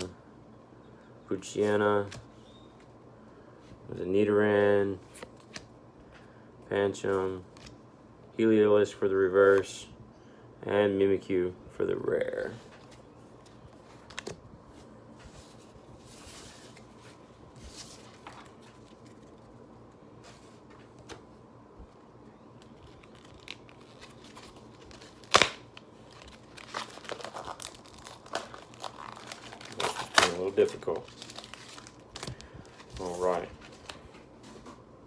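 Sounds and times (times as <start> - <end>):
packaging crinkling: 22.6 - 34.2
packaging rustling: 22.6 - 34.4
wrapper tearing: 22.8 - 34.0.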